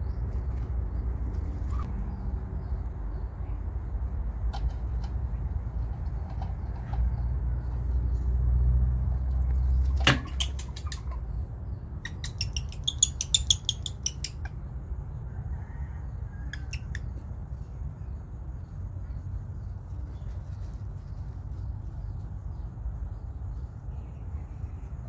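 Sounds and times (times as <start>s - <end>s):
high-pitched animal chirps: 10.2s - 11.2s, 12.0s - 14.5s.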